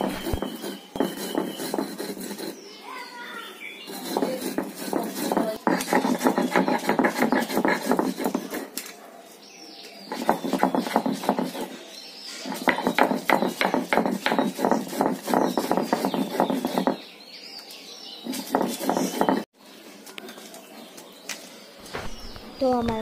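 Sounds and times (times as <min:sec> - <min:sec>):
stone grinding and scraping: 0:00.0 - 0:02.6, 0:03.8 - 0:08.7, 0:10.1 - 0:11.7, 0:12.4 - 0:17.0, 0:18.2 - 0:19.5.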